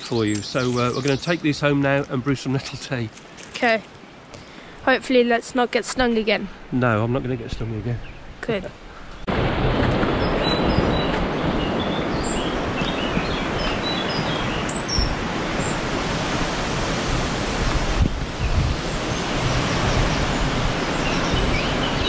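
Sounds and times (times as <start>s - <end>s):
small birds chirping: 0.0s - 6.4s, 10.2s - 15.8s, 18.4s - 22.0s.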